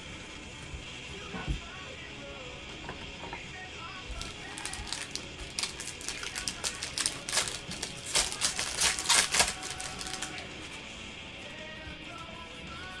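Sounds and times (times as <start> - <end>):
foil wrapper crinkling and tearing: 4.2 - 10.8.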